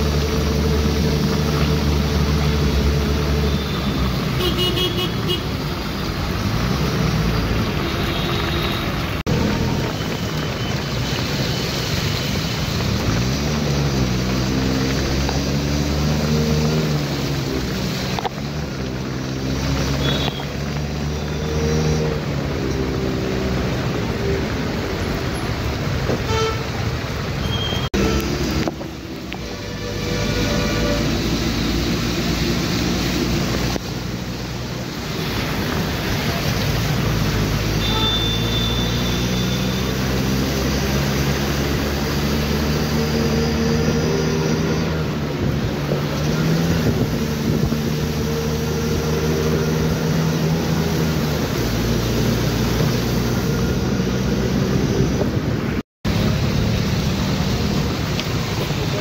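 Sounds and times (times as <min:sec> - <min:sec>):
rain hiss: 0:00.0 - 0:59.0
tyres on wet road: 0:00.0 - 0:59.0
wind: 0:00.0 - 0:59.0.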